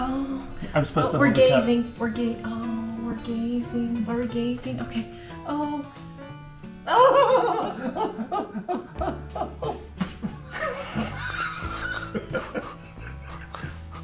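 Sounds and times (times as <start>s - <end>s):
background music: 0.0s - 14.0s
woman and man laughing: 6.9s - 14.0s.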